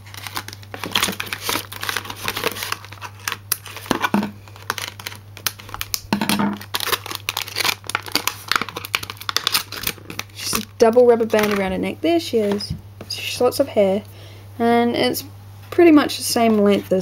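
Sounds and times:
plastic packaging crinkling: 0.0s - 12.7s.

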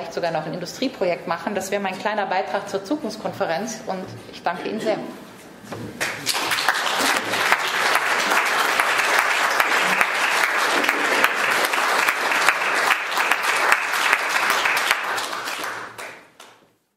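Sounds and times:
audience applauding: 6.0s - 16.6s.

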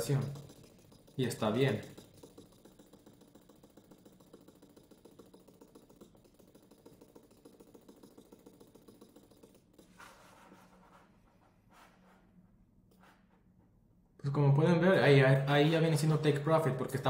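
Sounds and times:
light rapid ticking: 0.0s - 9.9s.

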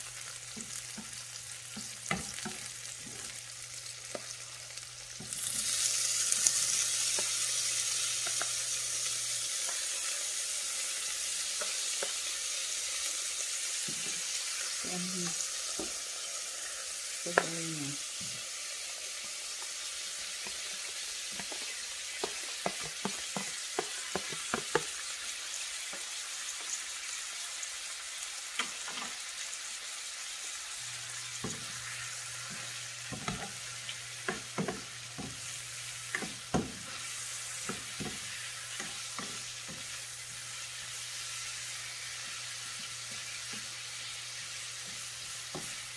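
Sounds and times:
vegetables sizzling in hot oil: 0.0s - 45.9s.

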